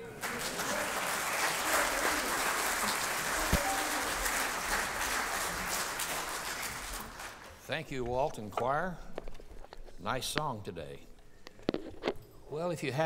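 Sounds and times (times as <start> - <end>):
congregation applauding: 0.0 - 7.6.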